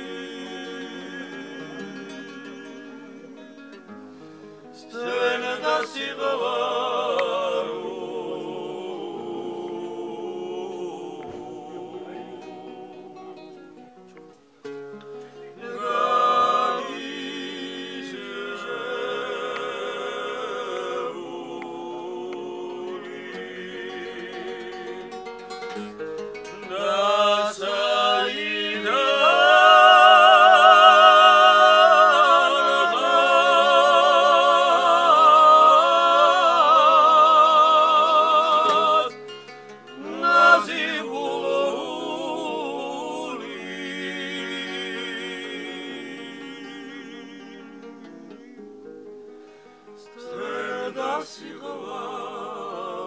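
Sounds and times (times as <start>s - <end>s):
men singing together: 0.0s - 3.6s, 4.8s - 13.6s, 15.6s - 25.4s, 26.6s - 39.2s, 40.0s - 48.6s, 50.2s - 53.0s
strummed acoustic guitar: 0.0s - 6.3s, 11.2s - 17.0s, 22.9s - 28.9s, 38.0s - 41.1s.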